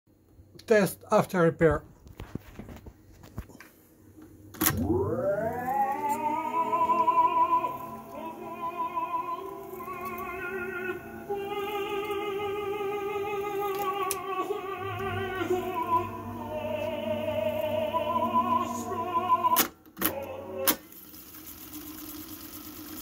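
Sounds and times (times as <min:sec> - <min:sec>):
recorded music with singing: 0:05.5 - 0:21.0.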